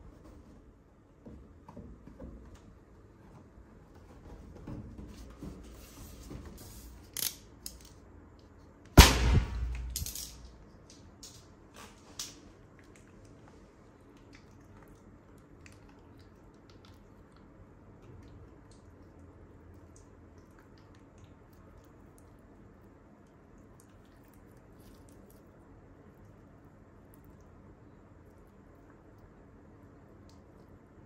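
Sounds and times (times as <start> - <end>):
balloon bursting bang: 9.0 - 10.0
faint wet clicks: 12.2 - 31.0.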